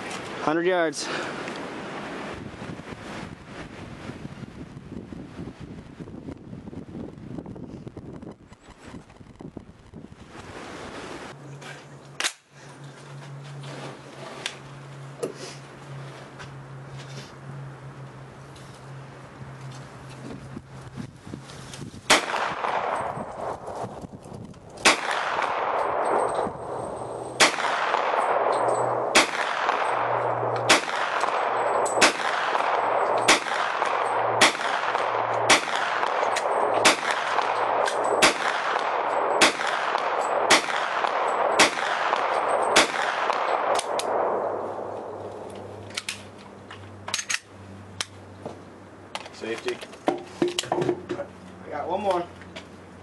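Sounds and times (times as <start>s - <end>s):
gunshots with echo: 22.1s - 23.6s, 24.8s - 26.8s, 27.4s - 45.2s.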